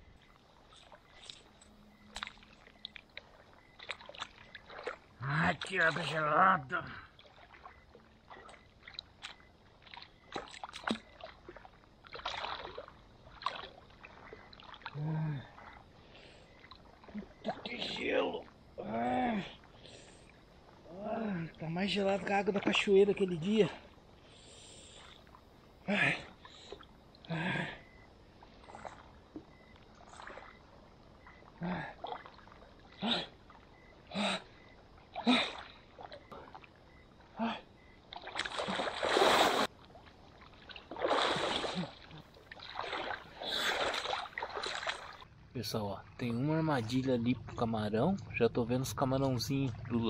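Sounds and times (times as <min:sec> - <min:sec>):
water splashing: 0:00.0 - 0:47.0
water splashing by hand: 0:00.7 - 0:06.2, 0:07.2 - 0:15.8, 0:38.1 - 0:45.3.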